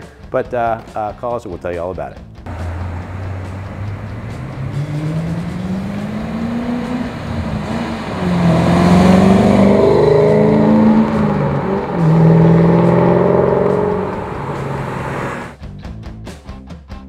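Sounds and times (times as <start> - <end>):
car engine accelerating: 2.5 - 15.6.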